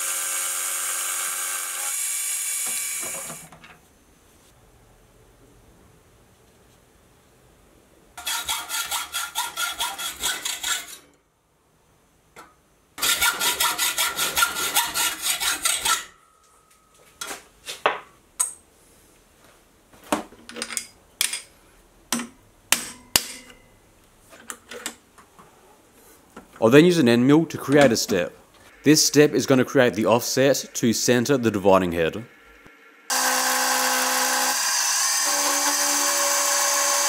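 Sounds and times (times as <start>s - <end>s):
hacksaw cutting steel: 8.2s - 11.1s, 13.0s - 16.1s, 33.1s - 37.0s.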